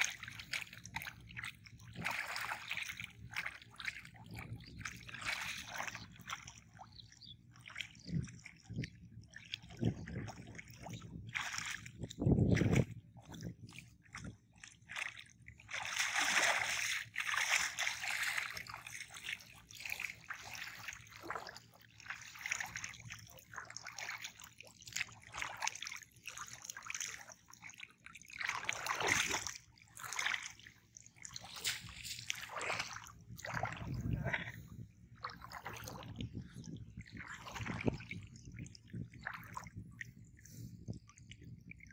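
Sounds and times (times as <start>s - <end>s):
river water sloshing and splashing: 0.0s - 41.9s
net splashing onto water: 15.7s - 22.6s, 28.4s - 30.4s, 31.3s - 33.8s.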